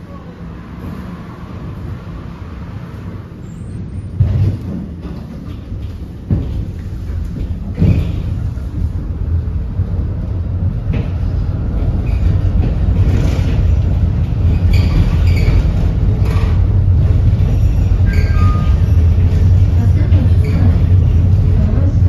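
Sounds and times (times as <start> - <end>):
tram motors and wheels rumbling: 0.0 - 22.0
wheels clacking over rail joints: 10.8 - 21.9.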